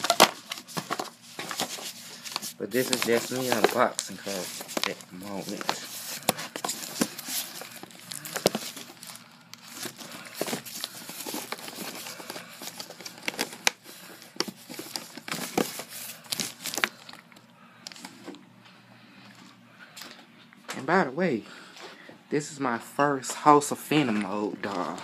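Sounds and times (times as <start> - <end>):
packaging crinkling and rustling: 0.0 - 18.4, 23.9 - 25.0.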